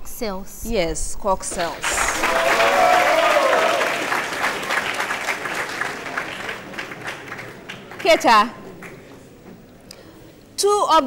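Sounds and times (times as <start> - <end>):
audience applauding: 1.5 - 9.5.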